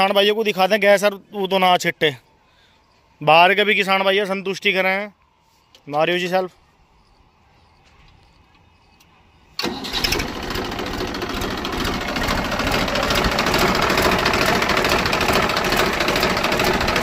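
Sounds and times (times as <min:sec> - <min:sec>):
diesel engine clattering idle: 0:09.6 - 0:17.0
electric starter cranking: 0:09.6 - 0:17.0.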